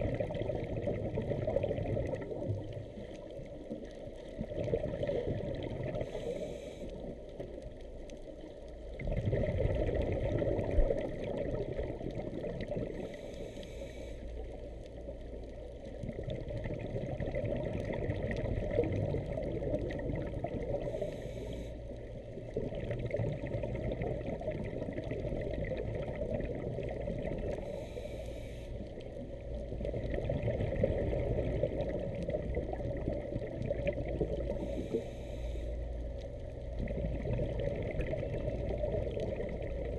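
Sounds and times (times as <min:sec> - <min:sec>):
muffled underwater wash: 0:00.0 - 0:39.9
bubbling hiss of exhaled air: 0:04.4 - 0:07.2, 0:09.0 - 0:14.5, 0:16.1 - 0:21.8, 0:29.9 - 0:35.8.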